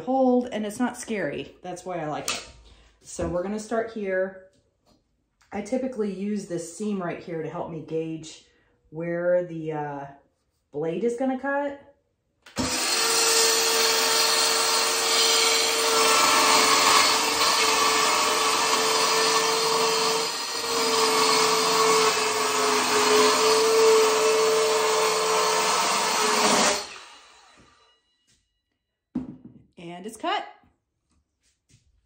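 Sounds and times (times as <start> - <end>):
circular saw cutting a board: 12.5 - 28.0.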